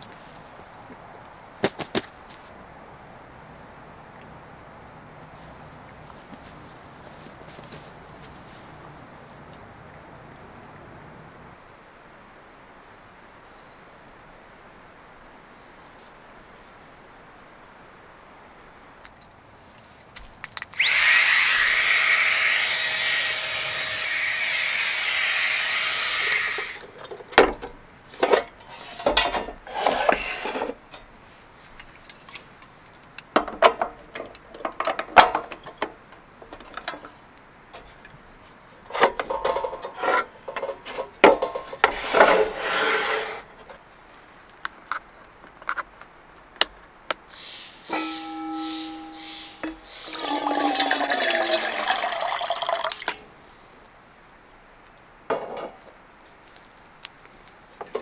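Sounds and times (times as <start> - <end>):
small electric motor whining: 20.8 - 26.8.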